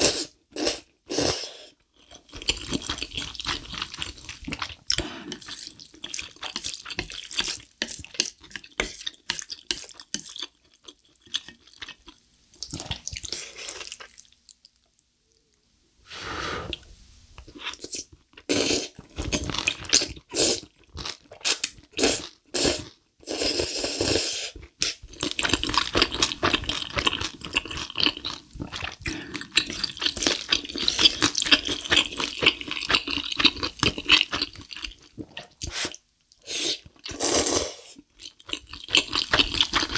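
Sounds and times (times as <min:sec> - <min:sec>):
chewing: 0:01.8 - 0:15.0, 0:24.6 - 0:37.2, 0:38.0 - 0:39.9
slurping noodles: 0:17.6 - 0:20.7, 0:21.4 - 0:38.0.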